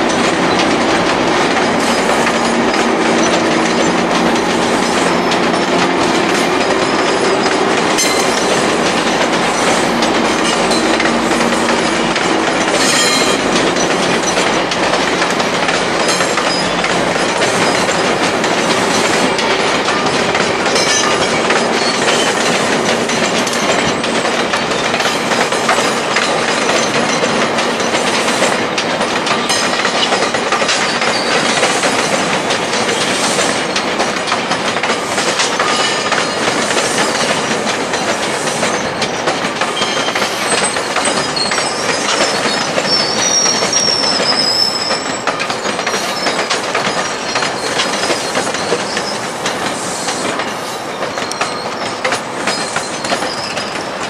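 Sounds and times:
train wheels clattering over rail joints: 0.0 - 54.0
faint high wheel squeal: 39.7 - 54.0.

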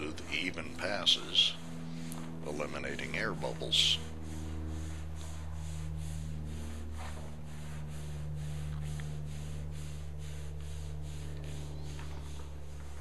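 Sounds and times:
hands rubbing vinyl on glass: 0.0 - 13.0
pulsing hiss: 0.0 - 13.0
steady low hum: 0.0 - 13.0.

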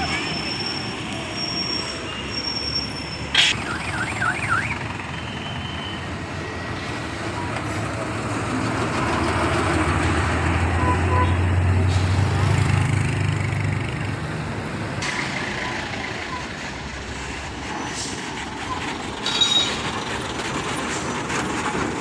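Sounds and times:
heavy truck engine: 0.0 - 22.0
traffic passing: 0.0 - 22.0
warbling siren-like horn: 3.4 - 4.9.

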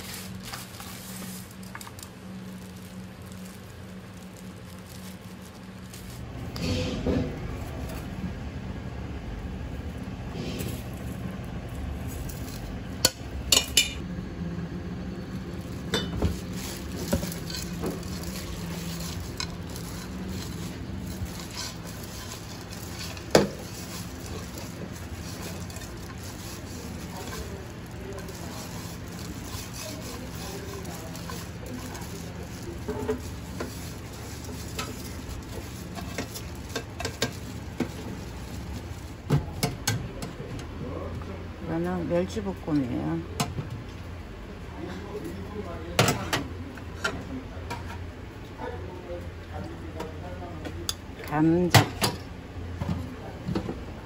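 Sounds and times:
steady low hum: 0.0 - 54.0
metal pans and utensils clinking: 13.0 - 14.0, 15.9 - 38.1
food tossed in metal pans: 15.8 - 40.0.

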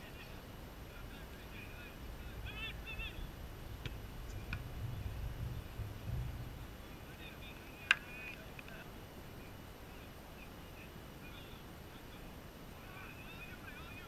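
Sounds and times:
faint distant shouts: 0.0 - 5.6
low rumble: 2.0 - 7.0.

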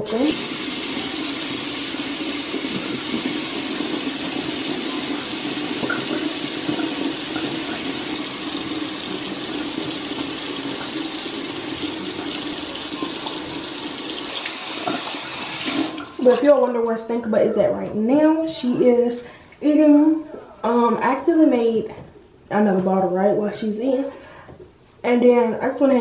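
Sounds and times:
water running from a tap: 0.0 - 16.7.

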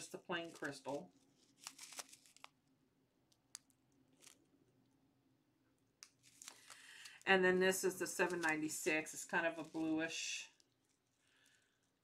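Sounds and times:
plastic bag crinkles and clicks: 0.4 - 2.6, 3.4 - 4.5, 6.0 - 7.3.

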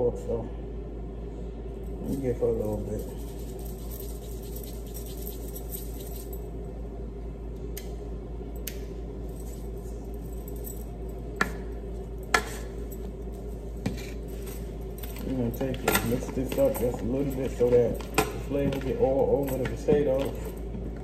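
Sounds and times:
steady low hum: 0.0 - 21.0
shaker clicks and taps: 3.0 - 6.3, 15.1 - 20.9.

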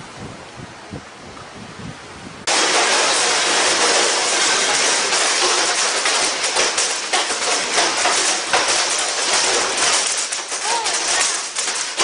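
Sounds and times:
hail drumming on roof and windows: 2.5 - 12.0.

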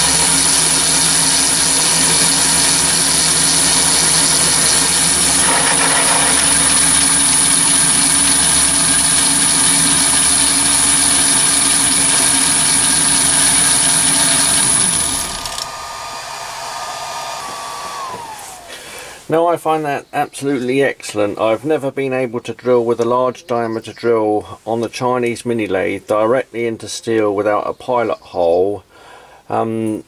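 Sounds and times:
drill cutting steel: 0.0 - 19.0
lathe motor drone and whine: 0.0 - 19.0.

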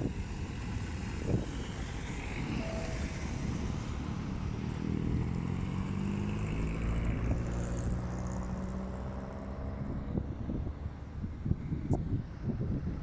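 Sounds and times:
wind rumbling on microphone: 0.0 - 5.8, 6.4 - 13.0
traffic passing: 0.0 - 13.0.

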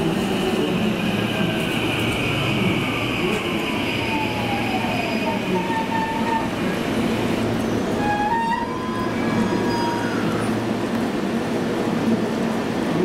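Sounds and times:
train brake squeal: 7.6 - 10.6.

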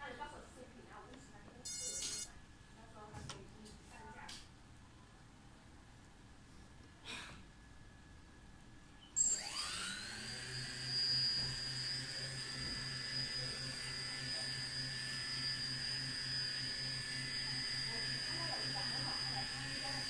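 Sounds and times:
drone motors whining: 1.7 - 2.3, 9.2 - 20.0.

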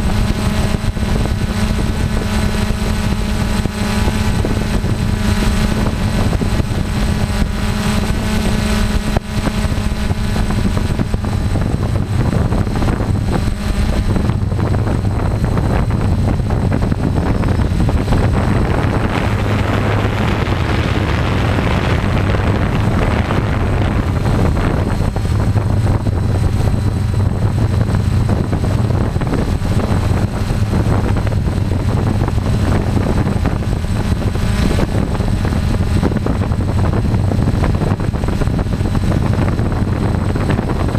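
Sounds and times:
drone motors and propellers: 0.0 - 40.9.

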